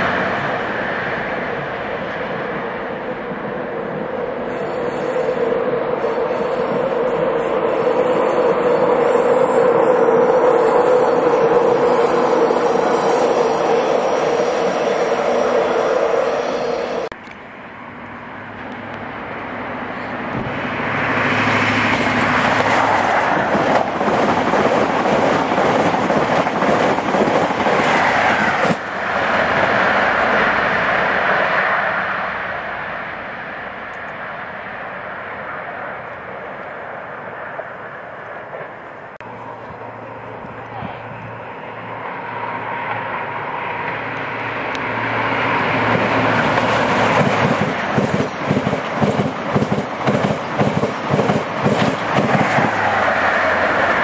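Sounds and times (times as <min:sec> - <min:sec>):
train coaches rushing past: 0:00.0 - 0:54.0
diesel engine drone: 0:39.1 - 0:47.2.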